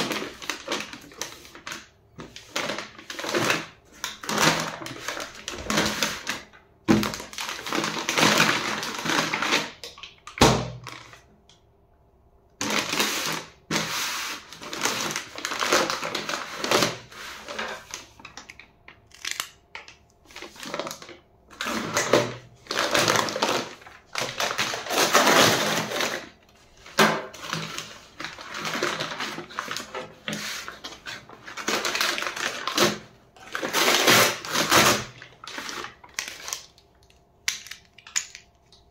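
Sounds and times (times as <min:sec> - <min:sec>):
paper bag crinkling: 0:12.6 - 0:18.3, 0:20.2 - 0:37.0.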